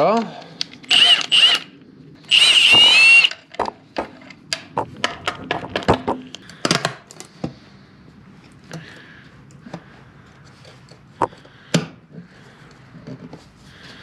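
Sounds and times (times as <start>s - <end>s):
cordless drill whine: 0.9s - 3.4s.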